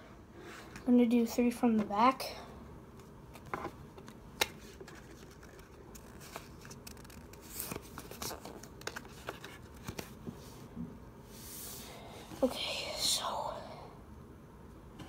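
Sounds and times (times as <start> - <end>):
trading cards sliding and rubbing: 11.3 - 11.9.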